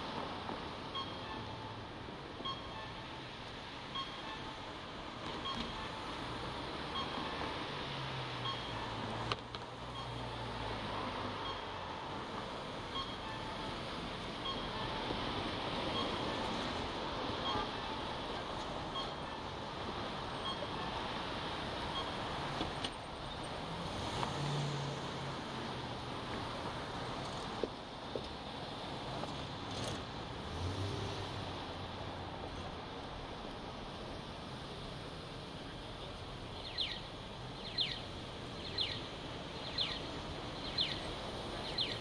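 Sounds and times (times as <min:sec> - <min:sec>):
road noise hiss: 0:00.0 - 0:42.0
crossing signal chirping: 0:00.8 - 0:23.4, 0:36.6 - 0:42.0
passing vehicle engine hum: 0:13.6 - 0:27.6, 0:28.7 - 0:35.9.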